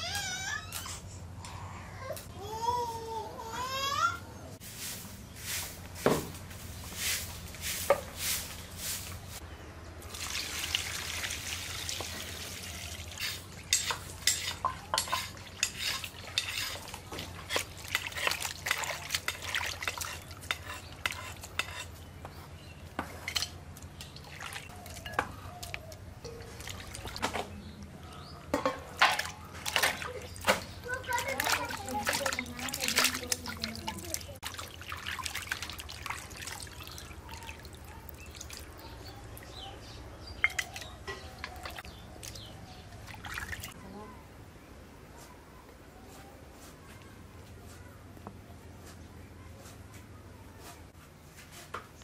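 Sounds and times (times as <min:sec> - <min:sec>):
running water: 0:10.0 - 0:21.2, 0:24.0 - 0:27.5, 0:29.0 - 0:39.6, 0:40.3 - 0:44.0
pots and utensils clinking: 0:13.1 - 0:22.0, 0:28.5 - 0:34.7, 0:40.4 - 0:42.5.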